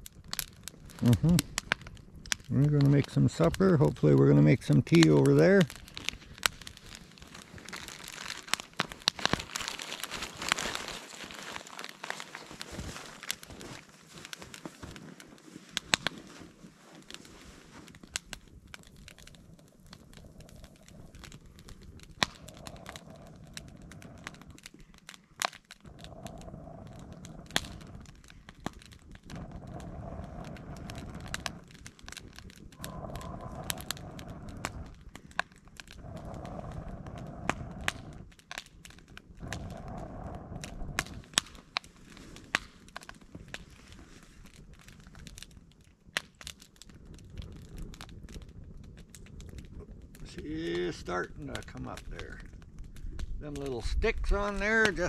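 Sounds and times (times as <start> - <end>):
wood fire crackling and popping: 0.0 - 55.0
person blowing air into fire: 0.7 - 3.9, 5.0 - 45.6.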